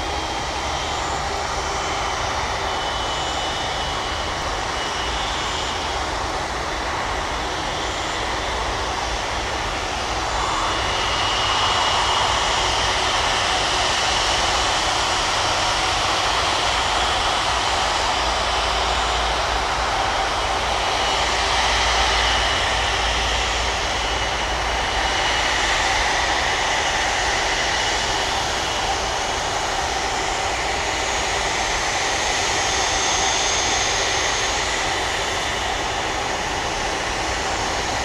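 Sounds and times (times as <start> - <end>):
jet engine whine: 0.0 - 38.0.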